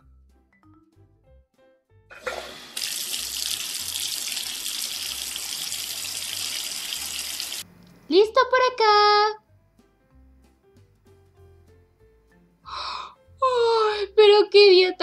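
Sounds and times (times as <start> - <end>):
tap running into sink: 2.1 - 7.6.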